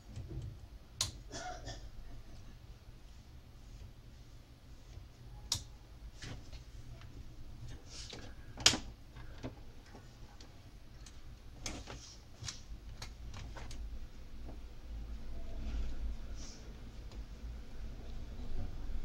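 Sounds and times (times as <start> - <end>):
faint low hum: 0.0 - 19.0
clicks and knocks of wires: 7.7 - 13.8.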